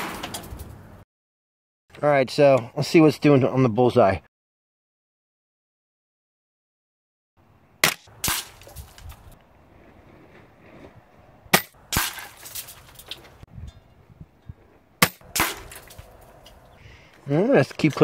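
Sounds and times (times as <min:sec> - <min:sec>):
air rifle shots cracking: 0:15.0 - 0:15.9.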